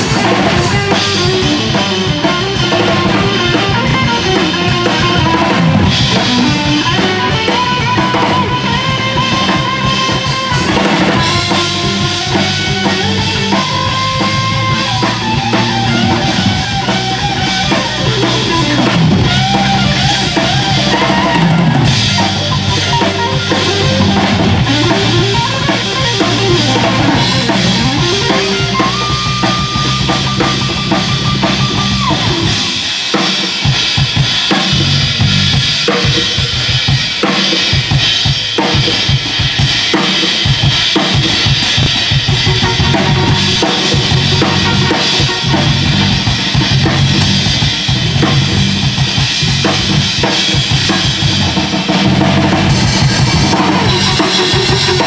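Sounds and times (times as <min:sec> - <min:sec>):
jazz band playing: 0:00.0 - 0:33.7, 0:41.2 - 0:55.0
snare and bass drum: 0:00.0 - 0:55.0.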